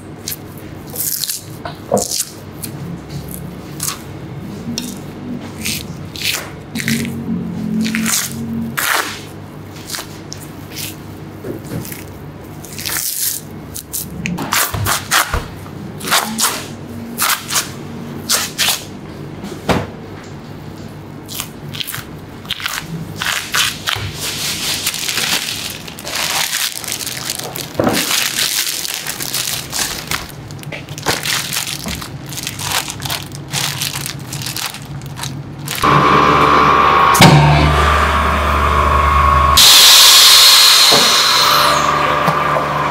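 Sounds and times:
plastic film crackling: 0:21.3 - 0:35.8
vacuum-packing machine hum: 0:35.7 - 0:42.9.

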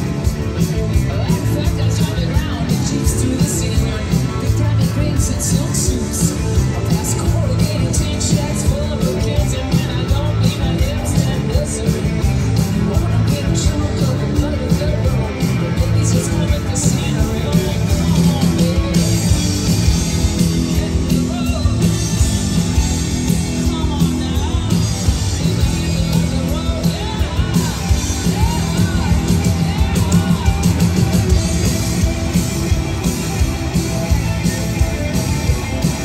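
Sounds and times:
bass: 0:00.0 - 0:36.0
drums: 0:00.0 - 0:36.0
electric guitars: 0:00.0 - 0:36.0
woman singing lead: 0:01.0 - 0:19.4, 0:23.1 - 0:32.2.

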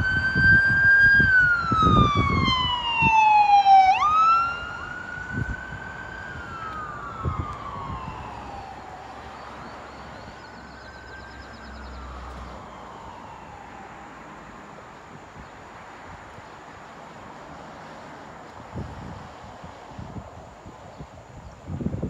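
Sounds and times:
ambulance siren wailing: 0:00.0 - 0:14.8.

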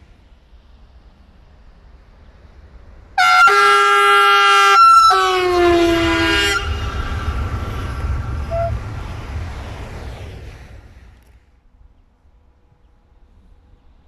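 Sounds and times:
train rumbling past: 0:00.0 - 0:14.0
train horn blasts: 0:03.2 - 0:08.8.

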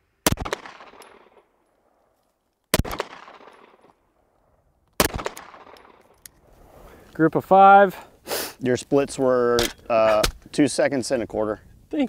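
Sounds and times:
gunshots: 0:00.2 - 0:01.5, 0:02.7 - 0:04.0, 0:05.0 - 0:06.0.

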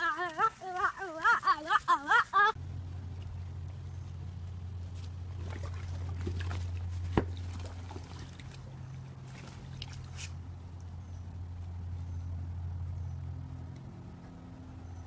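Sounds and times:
water splashing and dripping: 0:00.0 - 0:02.5, 0:04.8 - 0:11.0
steady low hum: 0:00.0 - 0:15.0.

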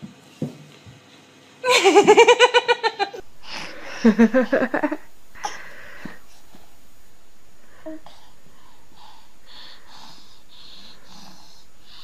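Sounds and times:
high-pitched giggling laughter: 0:01.6 - 0:03.2
lower-pitched laughter: 0:01.6 - 0:05.1.

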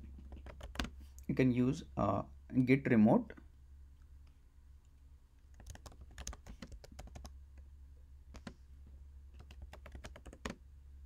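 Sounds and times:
faint low hum: 0:00.0 - 0:11.0
typing on computer keyboard: 0:00.3 - 0:00.9, 0:05.5 - 0:07.4, 0:09.4 - 0:10.6.

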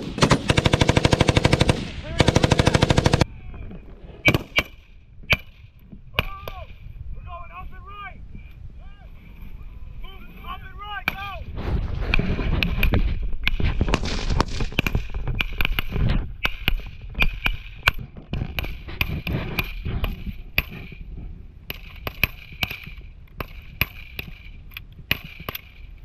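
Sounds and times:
rifle shots: 0:00.0 - 0:03.2, 0:04.2 - 0:05.6.

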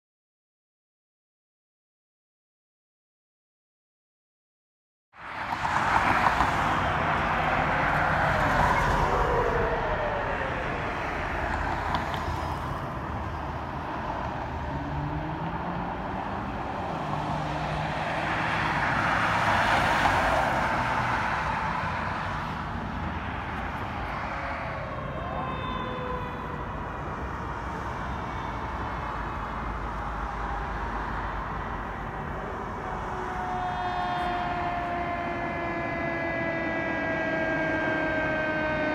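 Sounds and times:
traffic noise: 0:05.1 - 0:38.9
ambulance siren wailing: 0:05.6 - 0:12.7, 0:17.0 - 0:22.5, 0:23.1 - 0:38.9
fire engine horn tone: 0:33.4 - 0:38.9.

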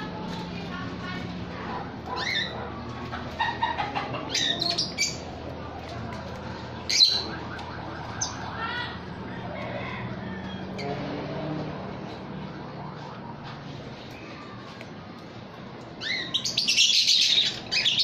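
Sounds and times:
parrots squawking and chirping: 0:01.1 - 0:05.4, 0:06.6 - 0:07.4, 0:16.0 - 0:18.0.

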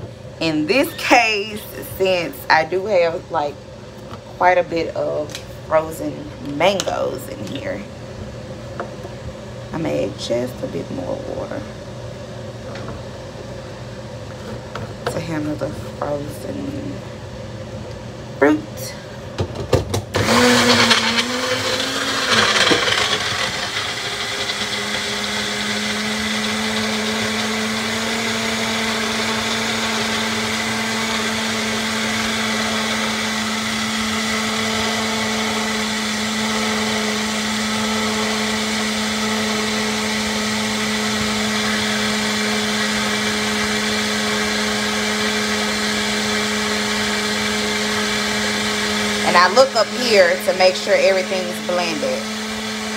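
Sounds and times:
blender motor running: 0:20.0 - 0:52.9.

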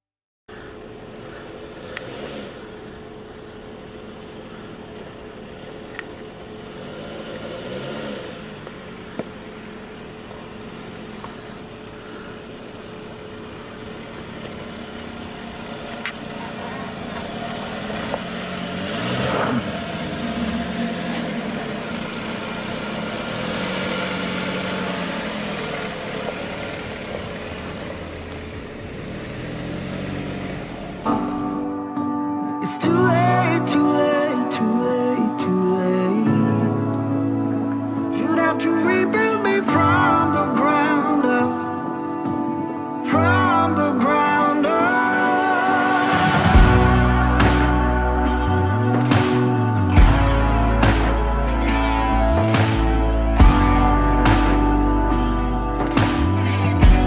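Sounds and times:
engine revving at low speed: 0:00.5 - 0:31.8.

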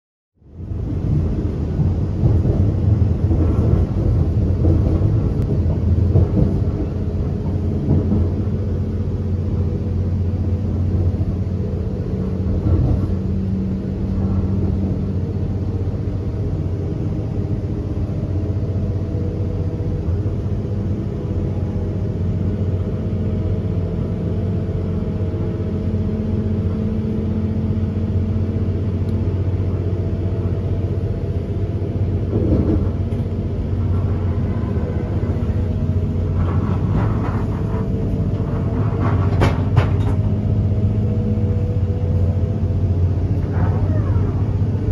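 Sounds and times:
low engine drone: 0:00.4 - 0:44.9
train rumbling: 0:00.4 - 0:44.9.

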